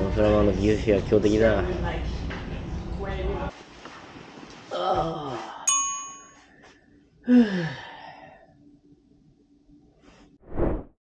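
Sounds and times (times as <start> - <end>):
man groaning and sighing: 4.7 - 5.6, 7.2 - 8.0
bright ding: 5.7 - 6.5
faint steady hum: 5.7 - 10.4.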